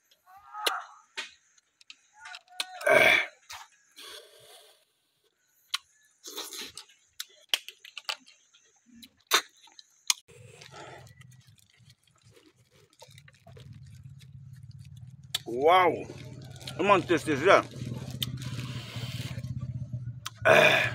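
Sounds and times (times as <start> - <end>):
slurping snails from shells: 5.8 - 19.6.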